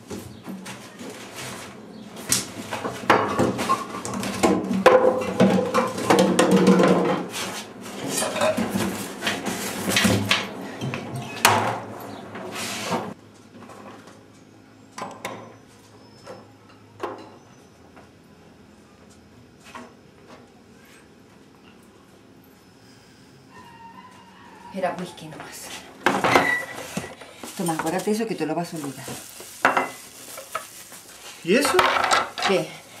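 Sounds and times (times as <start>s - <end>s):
things clattering in a cupboard: 0.1s - 14.1s, 26.0s - 28.2s, 31.5s - 32.7s.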